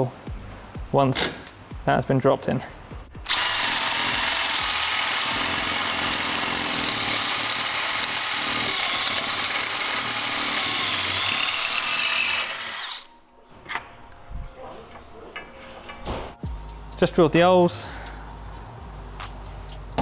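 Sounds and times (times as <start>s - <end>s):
cordless drill boring metal: 3.2s - 13.1s.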